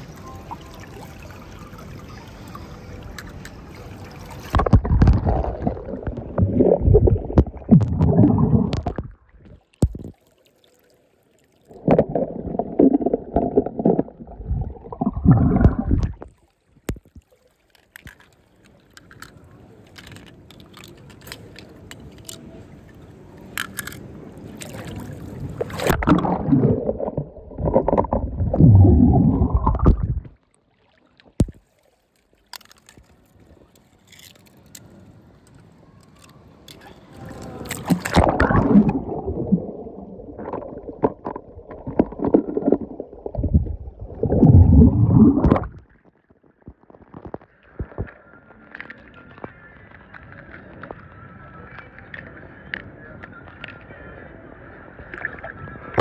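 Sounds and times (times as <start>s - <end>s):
pool water sloshing and gurgling: 0.0s - 51.0s, 55.0s - 56.0s
toy cars clicking: 17.8s - 22.4s, 23.5s - 24.0s.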